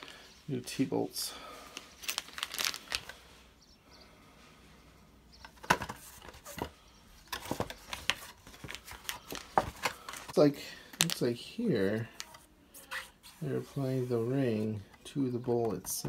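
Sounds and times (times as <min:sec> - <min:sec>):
plastic bag crinkling: 0:01.8 - 0:03.2.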